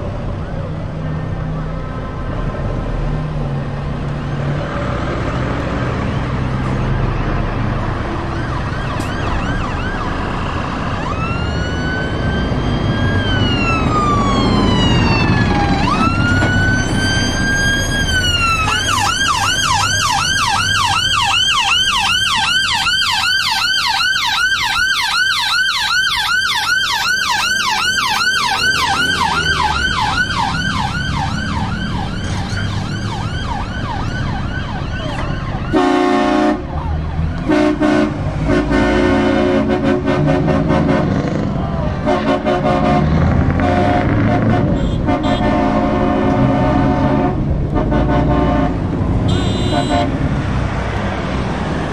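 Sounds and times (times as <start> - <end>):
ambulance siren: 0.0 - 51.9
lorry engines rumbling: 0.0 - 51.9
horn blast: 35.6 - 50.4.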